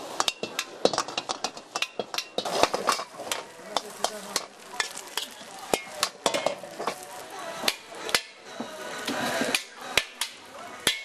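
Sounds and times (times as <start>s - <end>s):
food sizzling: 0.0s - 11.0s
metal utensils clanking on woks: 0.0s - 11.0s.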